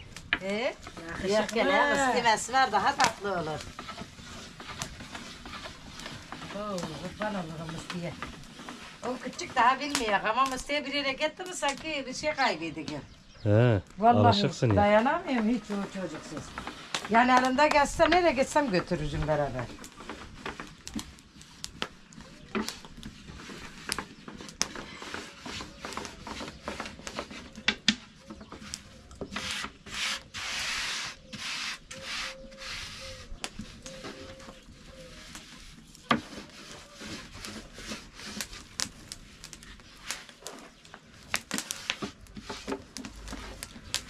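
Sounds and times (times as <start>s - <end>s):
rolling pin rubbing on dough: 1.9s - 10.3s, 22.3s - 27.6s, 29.3s - 40.2s, 41.5s - 43.7s.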